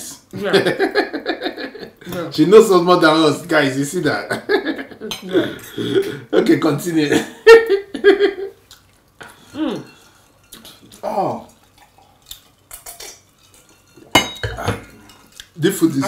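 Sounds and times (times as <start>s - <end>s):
cutlery and plates clinking: 11.7s - 16.0s.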